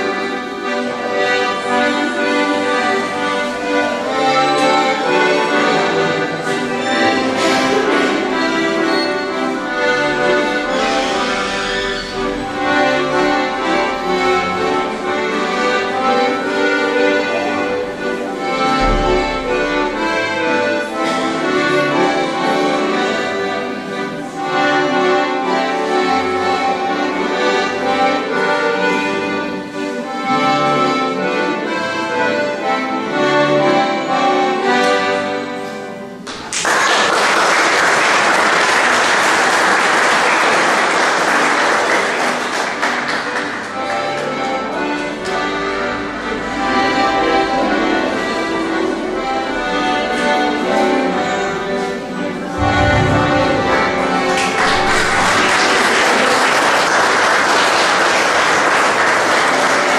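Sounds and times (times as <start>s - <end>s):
folk dance music: 0.0s - 59.9s
audience applause: 36.2s - 44.4s, 52.6s - 59.9s.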